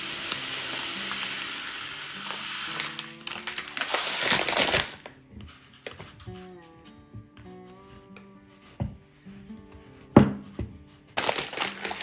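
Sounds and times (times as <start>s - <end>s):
sugar pouring into glass jar: 0.0s - 5.0s, 11.2s - 12.0s
soft background music: 0.0s - 12.0s.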